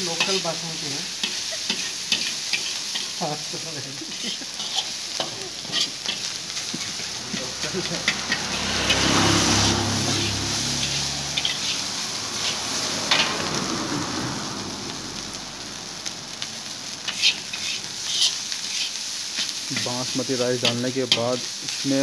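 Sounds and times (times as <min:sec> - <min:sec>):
metal spatula scraping wok: 0:00.0 - 0:13.7, 0:17.0 - 0:22.0
rice sizzling in a wok: 0:00.0 - 0:22.0
spatula clinking against wok: 0:01.2 - 0:03.2, 0:04.1 - 0:09.1.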